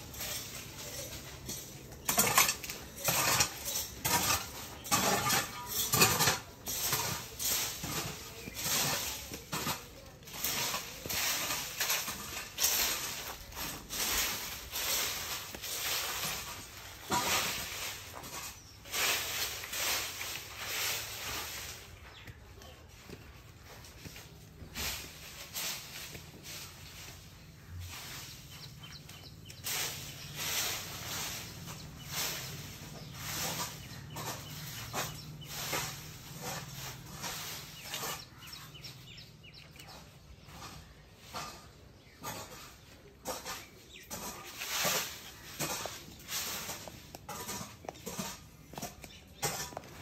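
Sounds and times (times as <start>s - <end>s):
hard objects clinking and clattering: 0.0s - 20.4s.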